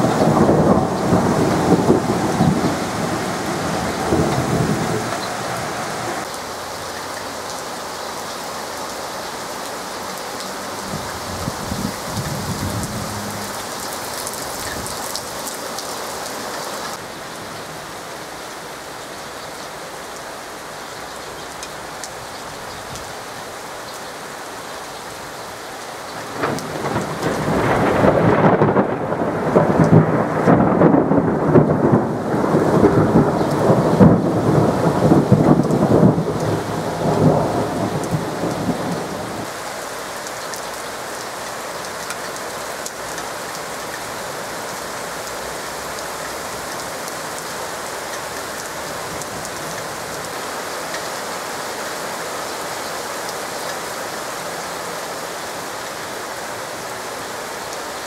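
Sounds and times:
thunder rolling and crackling: 0.0s - 6.3s, 10.9s - 15.2s, 26.2s - 39.5s
heavy rain: 0.0s - 58.0s.

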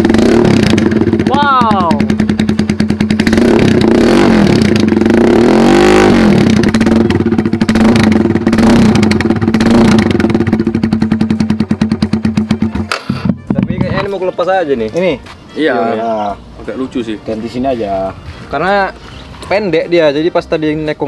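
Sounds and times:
motorcycle engine idling and revving: 0.0s - 14.1s.

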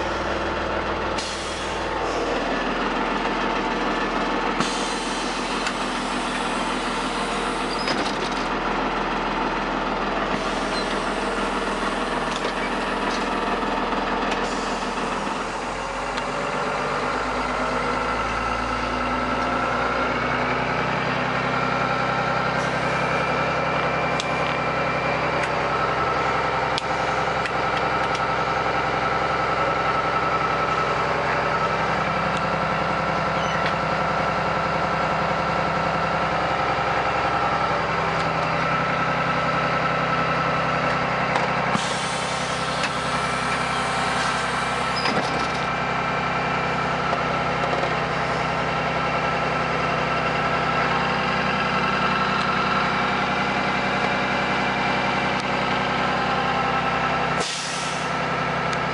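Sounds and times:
diesel bus engine idling: 0.0s - 58.9s
air hissing: 41.7s - 45.0s, 57.4s - 58.2s.

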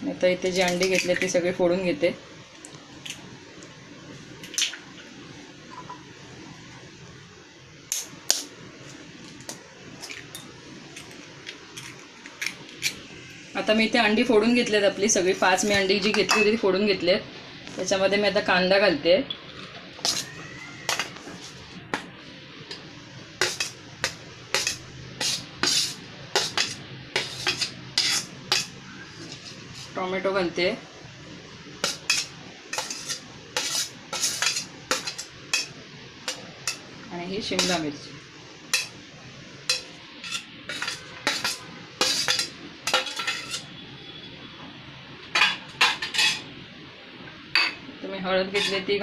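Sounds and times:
spoon clinking and scraping dishes: 10.0s - 13.0s, 16.1s - 16.6s, 23.4s - 29.9s, 31.8s - 36.8s, 38.8s - 39.0s, 39.7s - 43.7s, 45.4s - 46.5s, 47.6s - 47.8s, 48.5s - 48.9s
utensil clinking against dishes: 16.2s - 16.6s, 39.7s - 43.6s, 45.4s - 46.4s.

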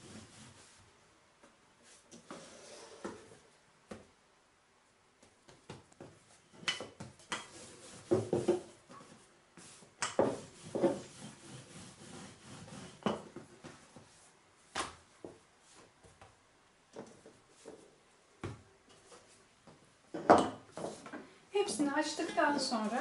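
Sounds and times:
rolling pin rubbing dough: 0.0s - 0.8s, 6.0s - 14.4s.

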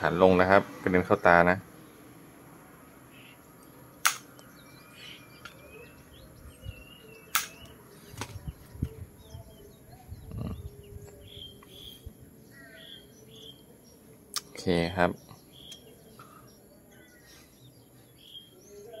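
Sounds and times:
birds chirping: 0.0s - 19.0s
side cutters snipping wire: 4.0s - 4.4s, 7.3s - 7.7s.

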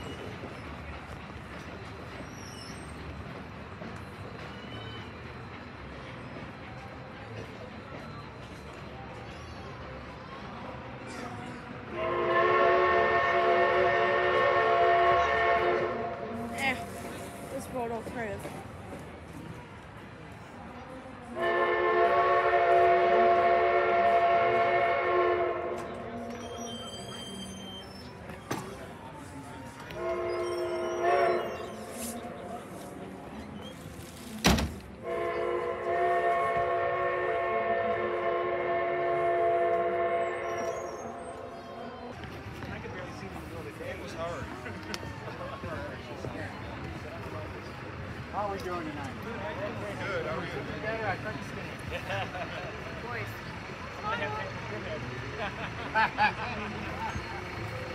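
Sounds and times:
steam locomotive whistle: 11.9s - 16.2s, 21.4s - 27.9s, 29.9s - 31.9s, 35.0s - 41.4s.

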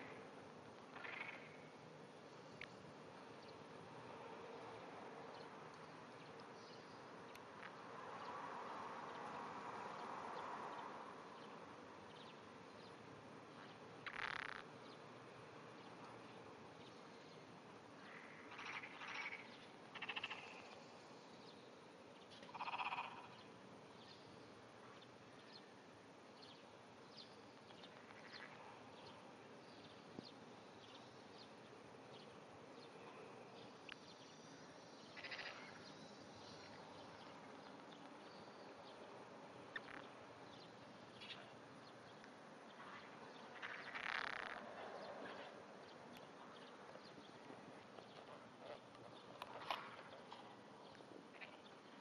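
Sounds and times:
frog calling faintly: 0.0s - 2.8s, 13.6s - 14.9s, 18.0s - 21.3s, 22.3s - 23.5s, 27.7s - 29.2s, 32.9s - 38.8s, 39.6s - 41.6s, 42.7s - 45.6s, 51.3s - 52.0s.

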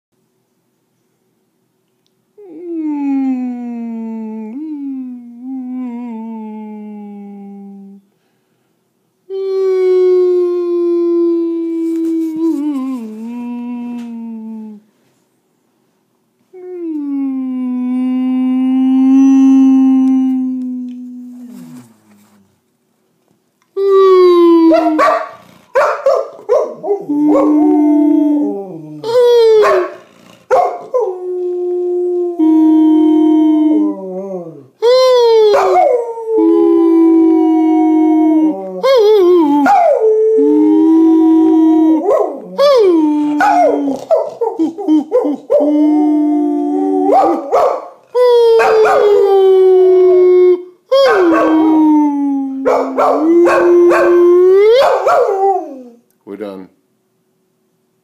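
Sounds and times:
man howling: 2.4s - 8.0s, 9.3s - 14.8s, 16.6s - 22.2s, 23.8s - 25.1s, 26.7s - 30.0s, 30.7s - 56.0s
dog howling: 16.6s - 22.4s, 23.8s - 56.0s.

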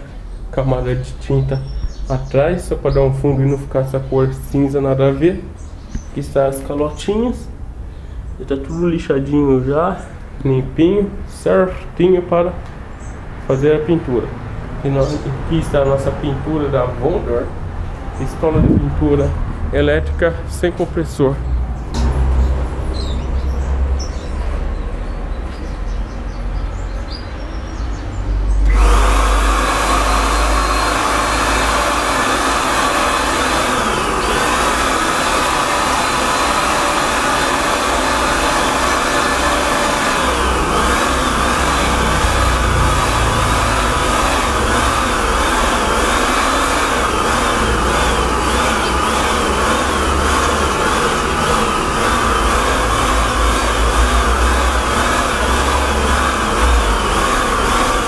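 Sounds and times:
electric paint spray gun: 22.0s - 23.5s, 28.6s - 58.0s.

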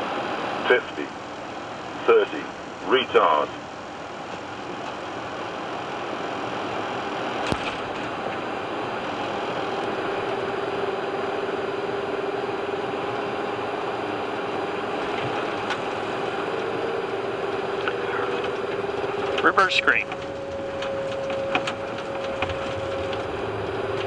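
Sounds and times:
steady rushing noise: 0.0s - 24.0s
steady hum: 5.1s - 24.0s.

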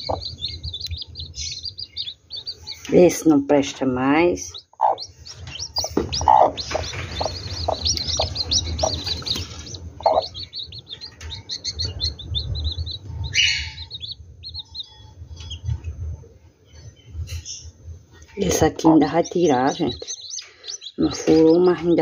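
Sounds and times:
chicks peeping: 0.0s - 22.0s.

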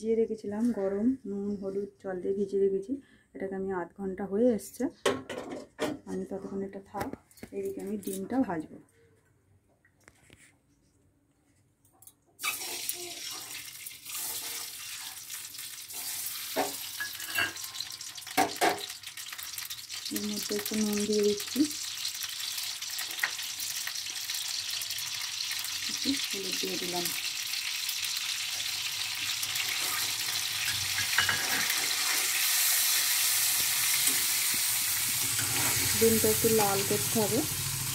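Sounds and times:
eggs sizzling in hot oil: 12.4s - 37.9s
spatula scraping a pan: 14.1s - 15.2s, 15.9s - 18.1s, 29.6s - 36.1s.

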